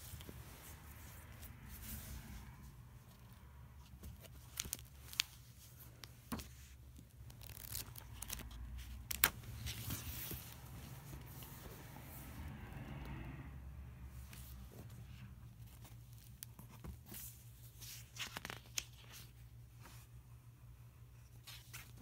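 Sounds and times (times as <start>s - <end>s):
low steady hum: 0.0s - 22.0s
pages rustling: 3.0s - 11.9s, 14.1s - 20.1s, 21.4s - 22.0s.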